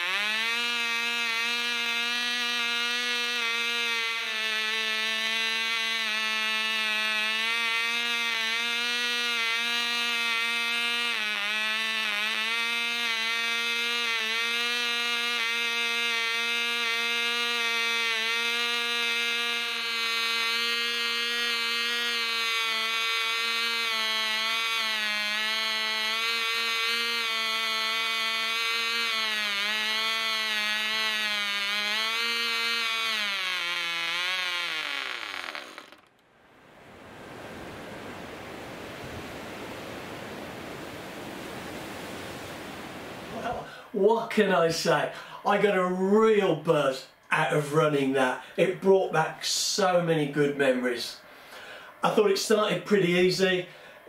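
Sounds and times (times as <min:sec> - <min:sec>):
model engine high whine: 0:00.0 - 0:36.2.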